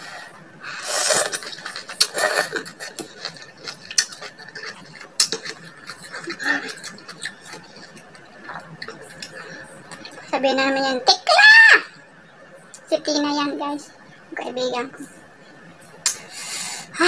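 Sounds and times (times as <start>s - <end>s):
person slurping food: 0.0s - 8.6s
wet chewing and smacking: 1.0s - 10.3s.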